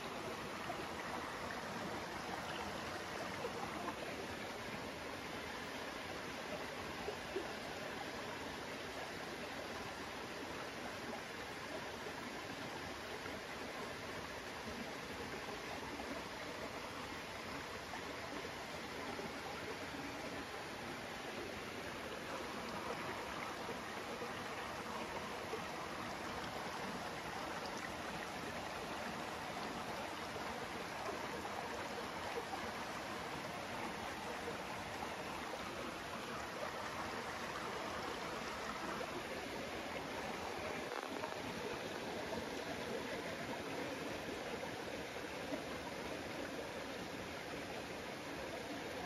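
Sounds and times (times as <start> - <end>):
stream flowing: 0.0 - 49.0.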